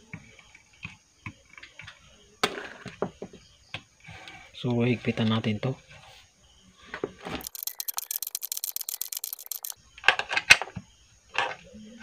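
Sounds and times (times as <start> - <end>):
ratchet wrench clicking: 7.4 - 9.8.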